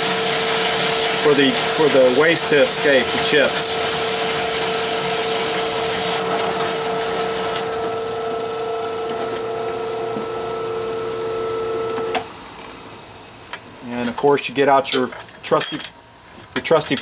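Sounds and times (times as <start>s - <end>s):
hole saw cutting steel: 0.0s - 6.2s
drill press motor whining: 0.0s - 12.4s.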